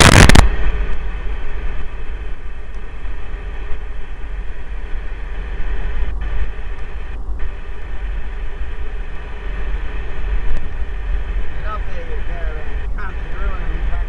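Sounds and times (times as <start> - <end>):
loud burst of noise: 0.0 - 14.0
vehicle road and engine rumble: 0.0 - 14.0.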